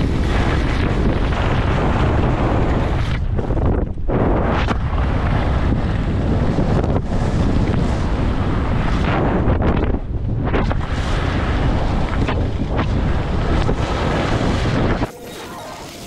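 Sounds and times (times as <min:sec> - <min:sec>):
wind buffeting microphone: 0:00.0 - 0:15.1
skis hissing over snow: 0:13.8 - 0:16.0.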